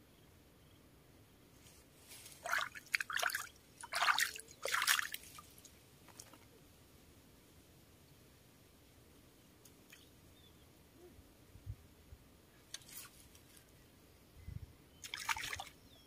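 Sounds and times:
fish splashing in water: 2.4s - 5.4s, 15.0s - 15.7s.

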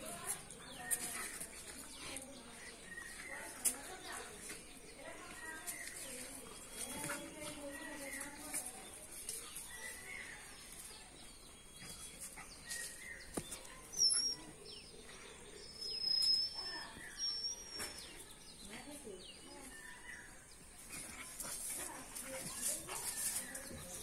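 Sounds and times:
birds chirping: 0.0s - 24.0s
dogs play-fighting: 0.1s - 4.9s, 5.6s - 14.7s, 20.0s - 24.0s.

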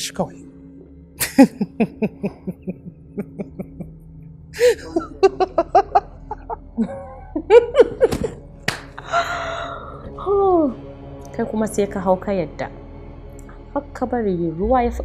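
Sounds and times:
woman laughing: 1.2s - 3.9s, 4.6s - 8.4s.

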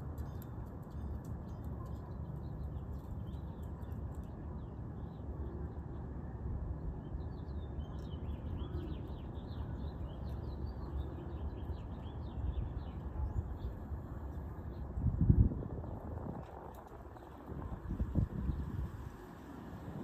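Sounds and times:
birds chirping: 6.8s - 15.0s.

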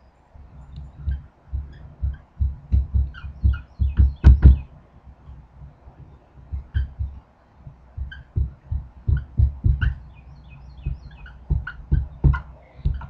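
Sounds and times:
faint marker squeaks: 6.6s - 7.1s, 8.0s - 8.4s.

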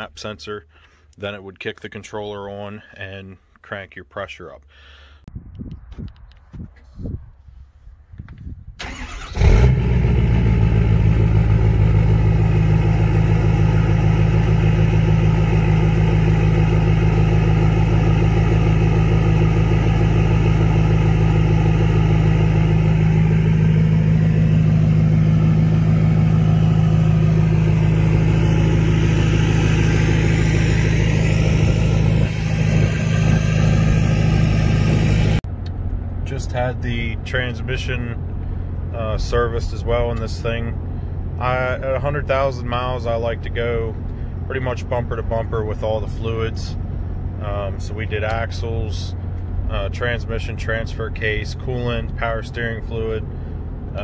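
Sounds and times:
diesel engine starting and idling: 8.7s - 54.0s.

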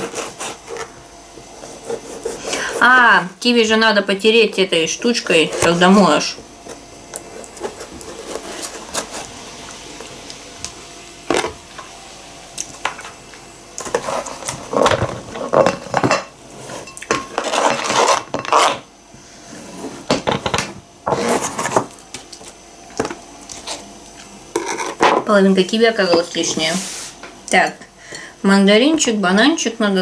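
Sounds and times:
scraping and clatter into glass bowl: 13.8s - 18.8s.

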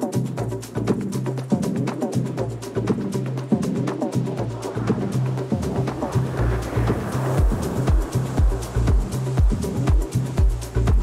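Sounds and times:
hi-hats ticking: 0.0s - 11.0s
kick drum: 0.0s - 11.0s
bass line: 2.4s - 11.0s.

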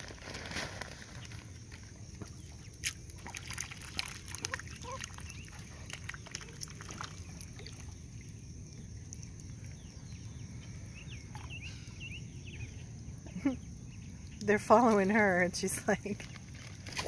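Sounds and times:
ducks dabbling in water: 1.1s - 12.2s.

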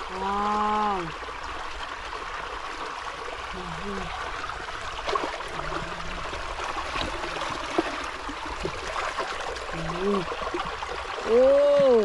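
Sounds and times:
water trickling: 0.0s - 12.0s.

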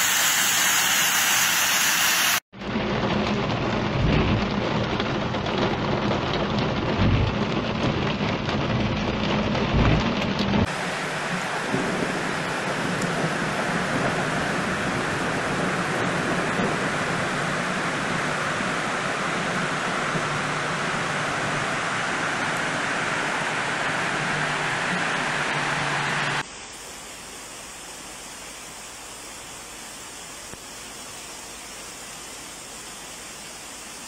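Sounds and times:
deep rumbles: 2.6s - 10.7s
heavy rain on windshield: 2.6s - 26.4s.

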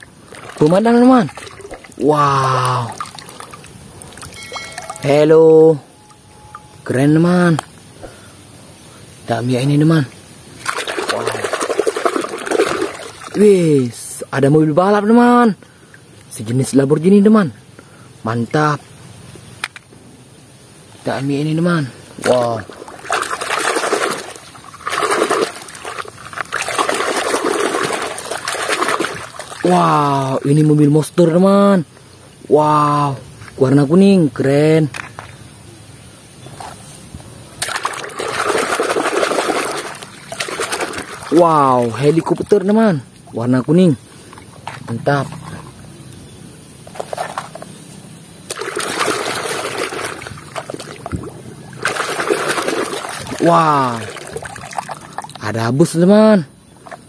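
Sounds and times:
water sloshing in a basin: 0.0s - 5.3s, 10.5s - 13.5s, 22.2s - 30.9s, 37.6s - 45.9s, 48.5s - 55.6s.

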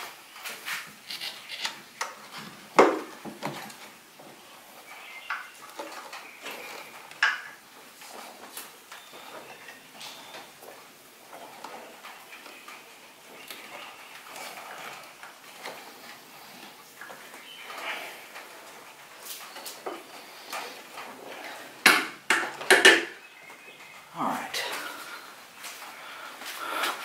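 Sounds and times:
hands clicking and tapping parts: 19.2s - 23.2s.

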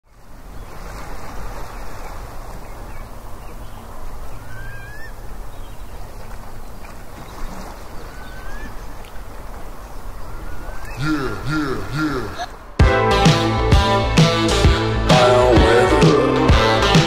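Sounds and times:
bird whistled call: 4.4s - 5.2s, 8.0s - 8.8s, 10.2s - 11.0s.

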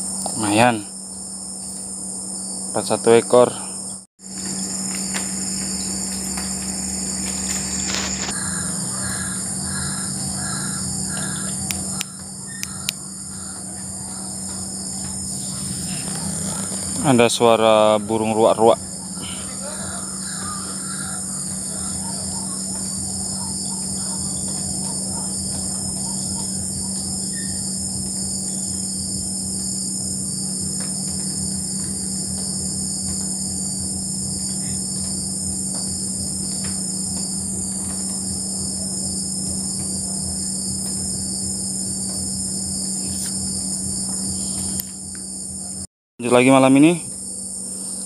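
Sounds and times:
insects trilling: 0.0s - 48.0s
low steady drone: 0.0s - 48.0s
bird calling: 4.4s - 28.9s.

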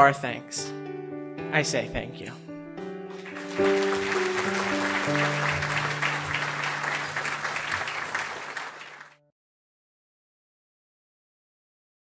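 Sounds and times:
held notes of closing music: 0.4s - 9.0s
audience applauding: 3.1s - 9.2s.

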